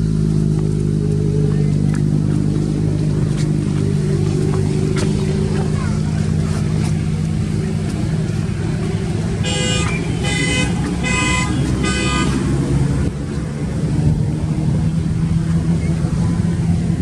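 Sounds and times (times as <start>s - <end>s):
low motor drone: 0.0s - 17.0s
horn toots: 9.4s - 12.8s.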